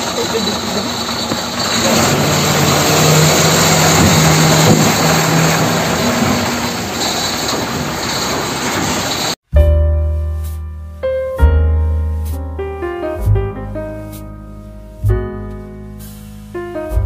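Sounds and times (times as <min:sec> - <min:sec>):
plastic wheels rolling on concrete: 0:00.0 - 0:09.4
piano music: 0:09.5 - 0:17.0.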